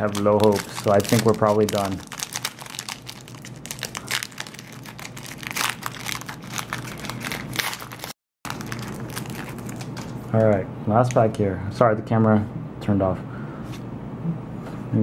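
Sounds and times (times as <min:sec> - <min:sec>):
foil wrapper crinkling: 0:00.0 - 0:11.2.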